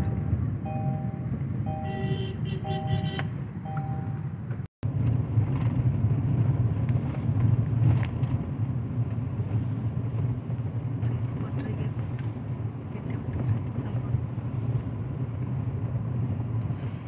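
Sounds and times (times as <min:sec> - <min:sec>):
two-tone beep: 0:00.0 - 0:02.0, 0:02.6 - 0:04.3
car engine and road rumble: 0:00.0 - 0:17.0.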